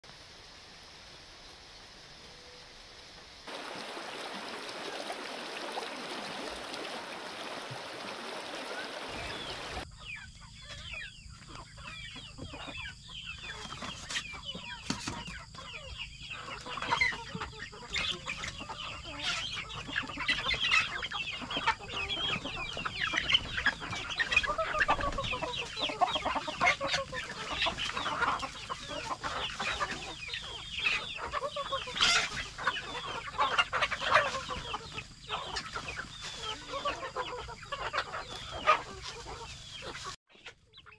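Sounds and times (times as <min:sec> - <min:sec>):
steady hiss: 0:00.0 - 0:09.8
chickens clucking: 0:05.5 - 0:40.9.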